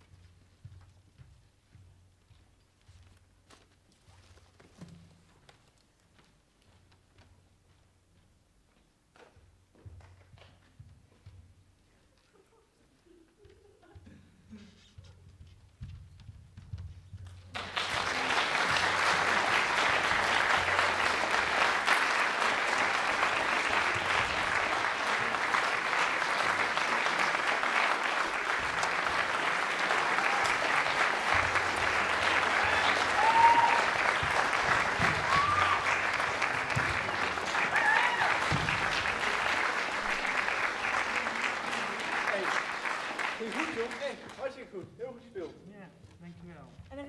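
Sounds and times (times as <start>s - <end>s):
audience applauding: 17.4s - 44.7s.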